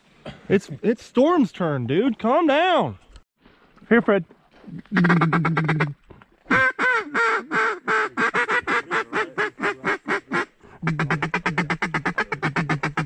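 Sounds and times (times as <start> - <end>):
duck call quacks: 5.0 - 13.0.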